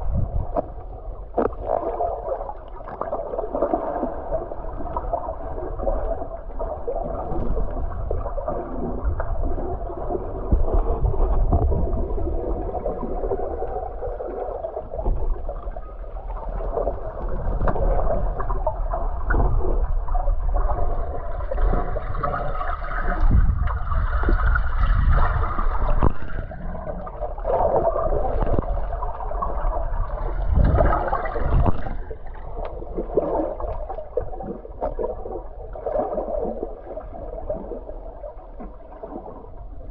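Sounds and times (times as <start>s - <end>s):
water gurgling underwater: 0.0s - 39.9s.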